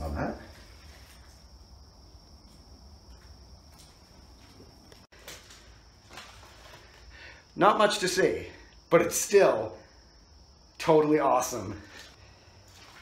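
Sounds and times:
quiet footsteps: 0.5 - 7.1.

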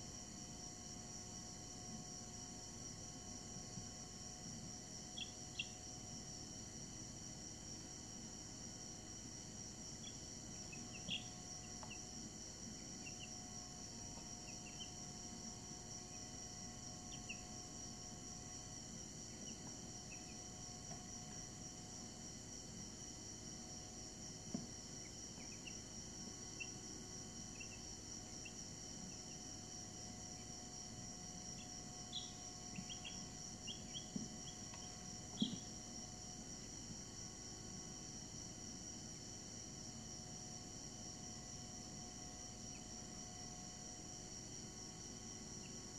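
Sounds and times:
chicks peeping: 32.1 - 35.6.

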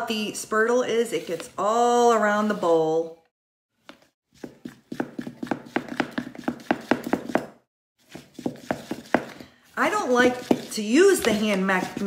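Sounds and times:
wooden spoon stirring batter in bowl: 3.8 - 12.0.

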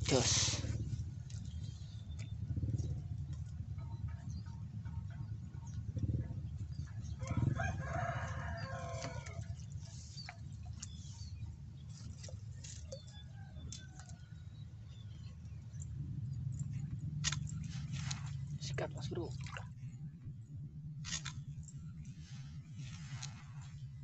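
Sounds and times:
steady low rumble: 0.0 - 24.0
rooster crowing: 7.2 - 9.4.

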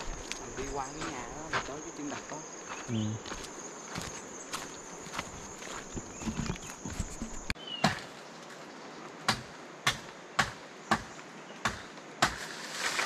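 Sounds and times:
bamboo being chopped: 6.2 - 8.1, 9.3 - 13.0.

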